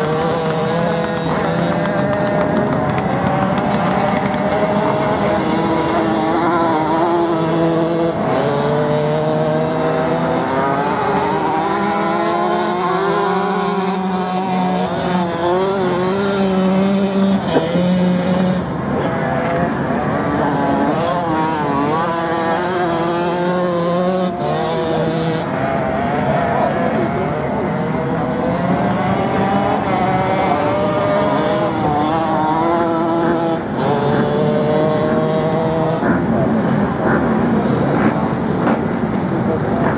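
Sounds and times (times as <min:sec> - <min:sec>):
motorcycle engines revving: 0:00.0 - 0:39.9.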